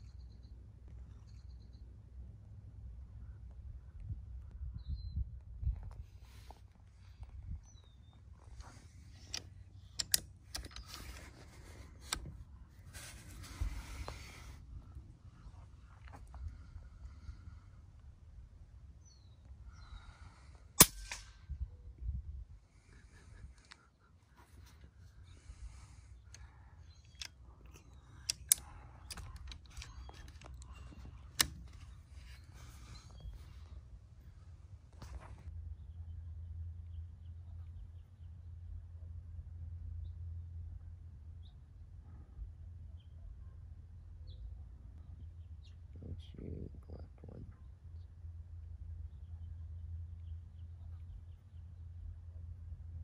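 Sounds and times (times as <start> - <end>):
sharp clicks of rifle scope: 8.6 - 12.3, 26.2 - 33.3
faint rustling: 10.5 - 17.8.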